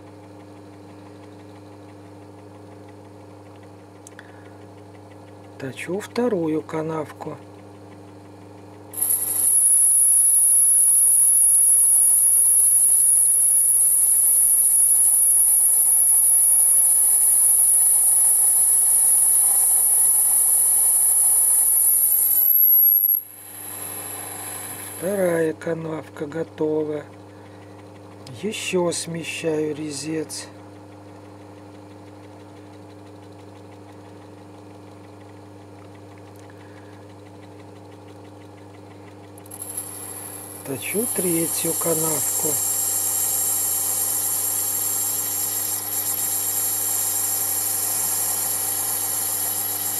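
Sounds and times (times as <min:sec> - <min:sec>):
faint regular ticking: 0:00.0 - 0:49.9
machine hum: 0:00.0 - 0:49.9
high-pitched whine of lathe cutting: 0:09.0 - 0:25.6, 0:39.4 - 0:49.9.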